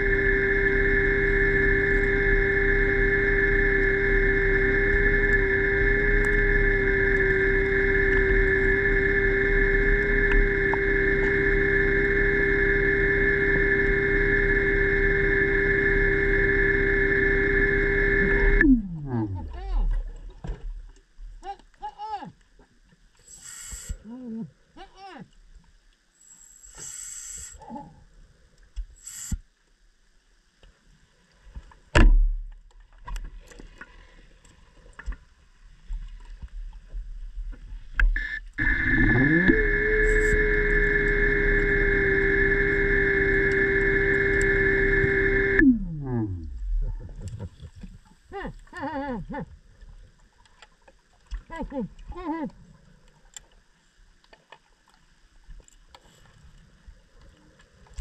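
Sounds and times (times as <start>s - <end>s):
underwater scooter motor whine: 0.0s - 20.9s, 35.8s - 47.8s
loud underwater thump: 31.9s - 32.4s.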